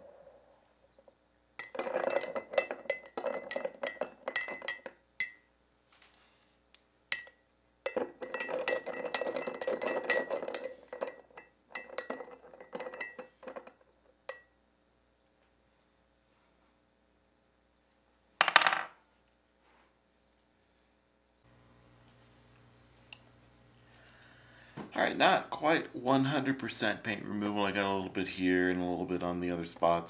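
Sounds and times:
stirrer clinking against glass: 1.6 - 5.4, 7.1 - 14.5.

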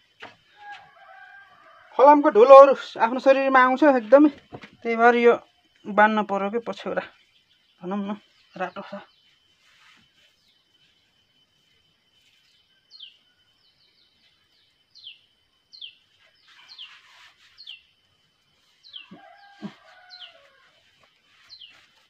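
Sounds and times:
bird chirping: 12.2 - 22.0.

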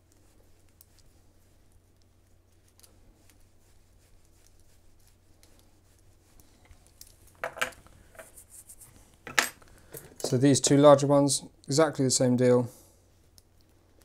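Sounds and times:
part clattering on a desk: 7.4 - 8.3, 9.2 - 10.4.

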